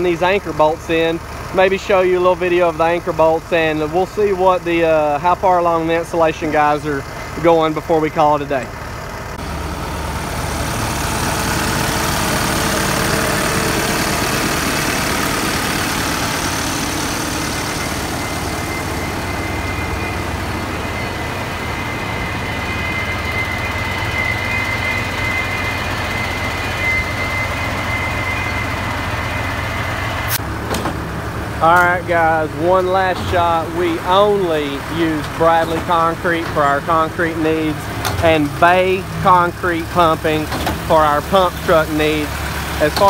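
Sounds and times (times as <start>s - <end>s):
diesel truck engine idling: 0.0s - 43.0s
thin high whine: 14.5s - 30.4s.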